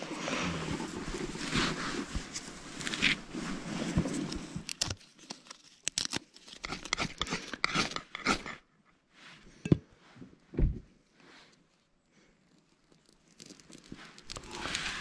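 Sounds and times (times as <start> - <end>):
tinder scraping: 0.0 - 8.6, 12.6 - 15.0
crackling and tearing: 4.3 - 8.6, 12.5 - 15.0.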